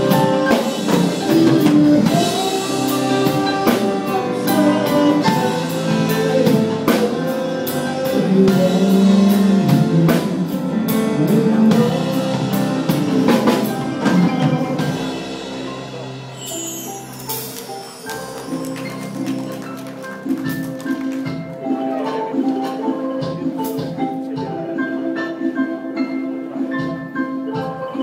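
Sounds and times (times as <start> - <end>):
electric guitars: 0.0 - 16.2
drum and cymbal strikes: 0.0 - 21.5.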